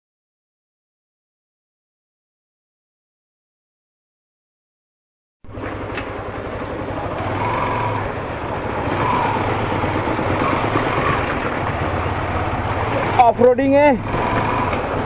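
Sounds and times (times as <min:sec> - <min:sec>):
motorcycle engine running: 0:05.5 - 0:15.0
road and wind noise: 0:05.5 - 0:15.0.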